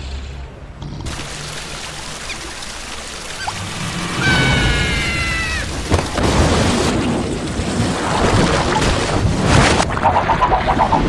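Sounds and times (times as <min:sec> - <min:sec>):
cartoon water rushing: 0:01.1 - 0:11.0
high cartoon squeal: 0:03.4 - 0:05.8.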